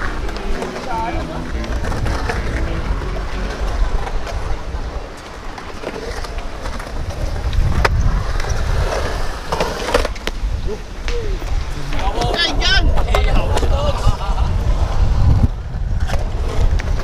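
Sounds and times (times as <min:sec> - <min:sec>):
skateboard wheels rolling on concrete: 0:00.0 - 0:17.0
wind rumble on microphone: 0:06.4 - 0:17.0.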